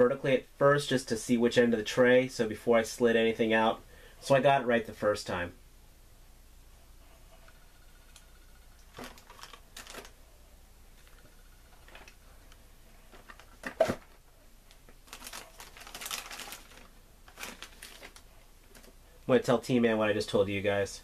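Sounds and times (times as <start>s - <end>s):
plastic wrapping rustling: 8.8s - 10.2s, 11.8s - 12.2s, 13.0s - 19.0s.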